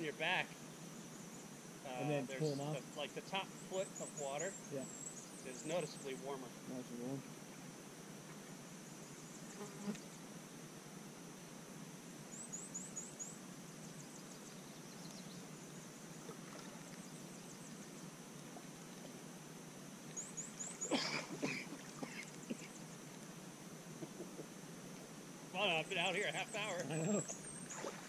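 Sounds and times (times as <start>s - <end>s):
bird chirping: 0.0s - 6.4s, 12.3s - 16.2s, 20.1s - 21.4s, 25.6s - 28.0s
steady high hiss: 0.0s - 28.0s
water splashing and sloshing: 16.2s - 17.1s, 21.0s - 22.6s, 27.2s - 28.0s.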